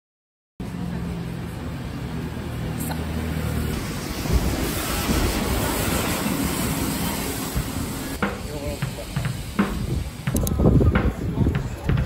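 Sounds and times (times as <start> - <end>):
city street traffic: 0.6 - 12.0
wind buffeting microphone: 3.6 - 12.0.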